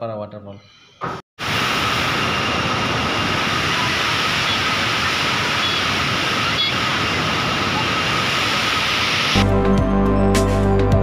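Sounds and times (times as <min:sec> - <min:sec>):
waterfall rushing: 0:01.4 - 0:09.4.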